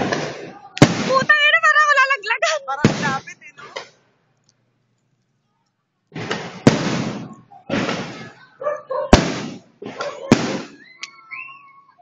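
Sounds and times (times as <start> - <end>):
firework shells bursting: 9.1 - 11.2.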